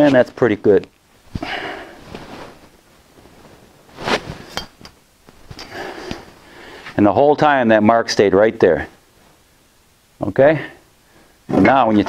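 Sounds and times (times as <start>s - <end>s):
soft handling noise: 0.0s - 7.0s.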